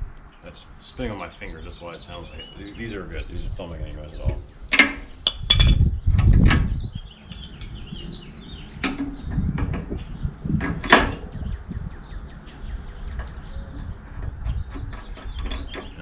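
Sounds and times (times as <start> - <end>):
sharp knocks of metal parts: 4.7 - 6.7, 8.8 - 9.9.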